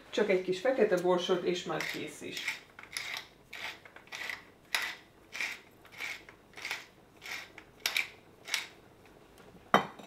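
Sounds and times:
pepper mill grinding: 1.6 - 8.8.

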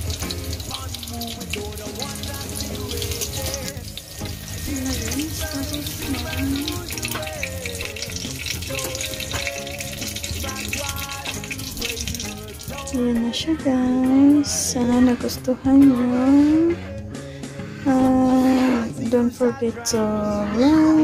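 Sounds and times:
fritters sizzling in hot oil: 0.0 - 13.0
background music with melody: 0.0 - 21.0.

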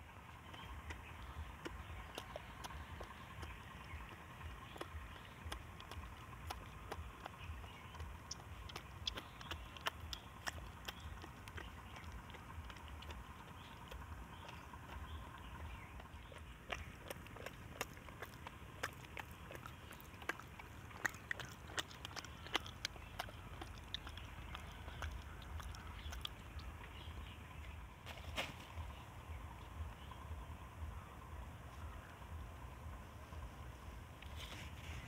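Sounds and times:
monkey chewing food: 0.0 - 27.9
low steady rumble: 0.0 - 35.0.

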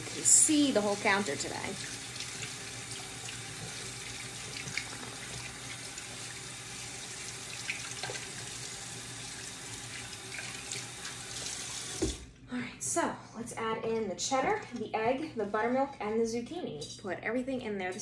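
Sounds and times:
faucet running into sink: 0.0 - 12.2.

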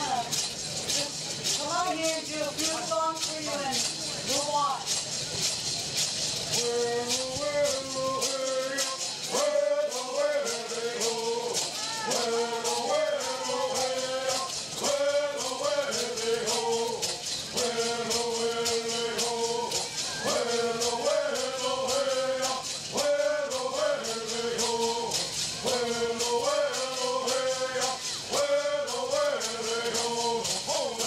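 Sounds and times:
gourd rattles shaking: 0.0 - 31.0
men singing in unison: 6.5 - 31.0.

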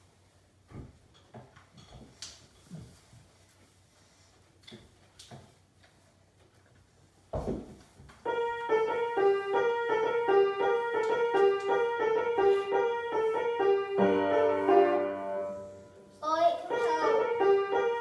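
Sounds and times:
piano playing: 8.3 - 18.0.

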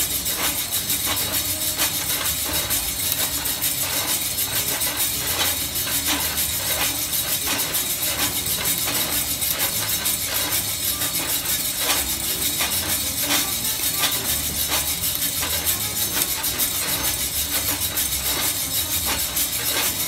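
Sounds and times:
coffee beans tumbling in drum: 0.0 - 20.0.

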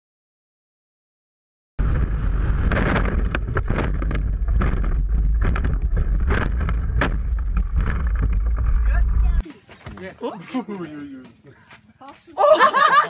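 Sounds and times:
vehicle rumble: 1.8 - 9.4.

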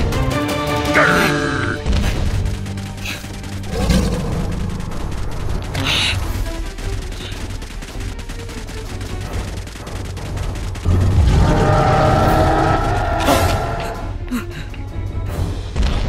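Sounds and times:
film music: 0.0 - 16.0
blaster firing: 3.1 - 13.8.

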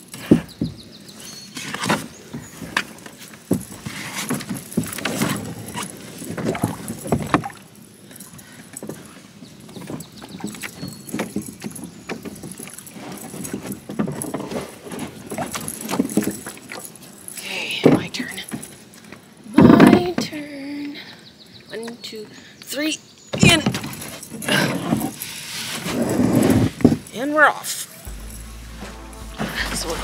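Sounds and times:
knocks and scrapes on canoe hull: 1.5 - 7.6, 23.4 - 27.1.

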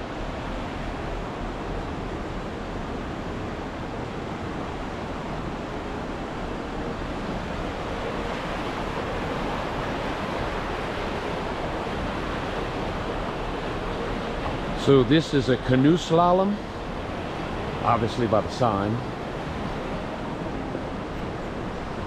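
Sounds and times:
river rapids rushing: 4.5 - 22.0.

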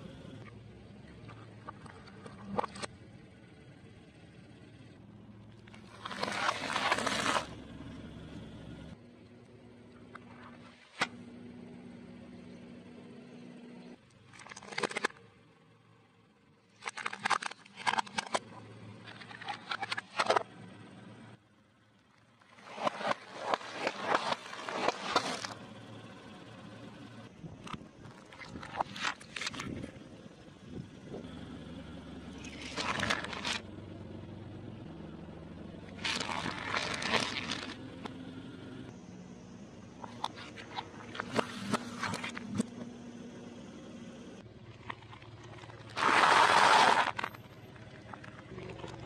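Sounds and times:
crackling under tyre: 0.0 - 15.4, 16.6 - 49.0
car engine humming: 0.0 - 49.0
tyre crushing plastic: 22.6 - 25.6, 32.5 - 33.6, 36.0 - 37.8, 45.4 - 47.3.

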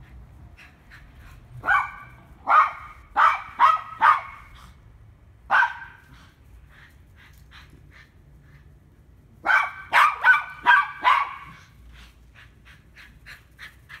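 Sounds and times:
dog yipping: 1.6 - 4.5, 9.4 - 11.6
small dog barking: 1.6 - 4.6, 5.5 - 6.1, 9.4 - 11.6.

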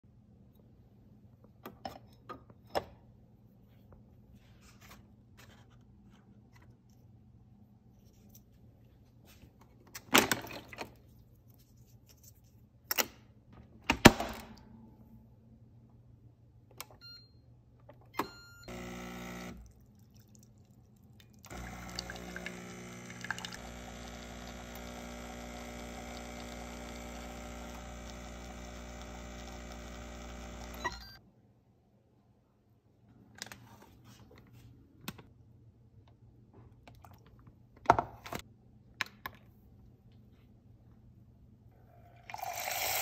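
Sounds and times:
coffee maker pump humming: 18.7 - 19.8, 21.4 - 31.2, 42.1 - 43.0.

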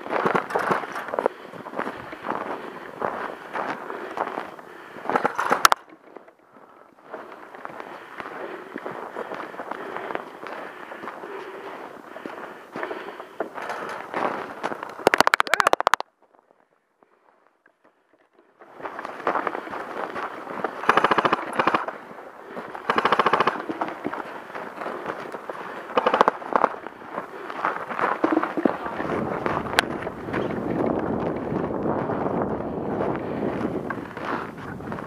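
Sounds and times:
airsoft rifle bursts: 15.0 - 16.0, 20.8 - 21.9, 22.8 - 23.8, 26.0 - 26.7.

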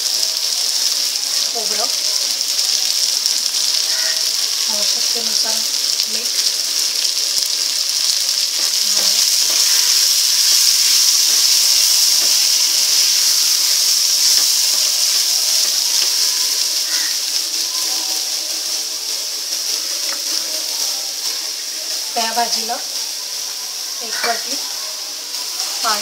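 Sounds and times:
food sizzling in oil: 0.0 - 26.0
spoon stirring: 8.3 - 17.1.

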